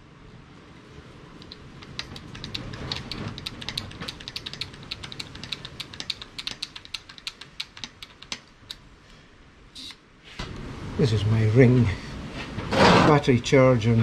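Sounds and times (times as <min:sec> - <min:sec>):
hydraulic crimper clicking: 0:01.4 - 0:08.8.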